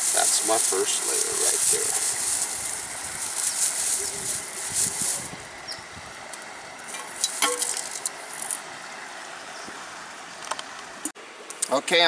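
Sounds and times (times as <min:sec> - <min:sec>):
dry grass rustling: 0:00.0 - 0:09.2
flowing river hiss: 0:00.0 - 0:12.0.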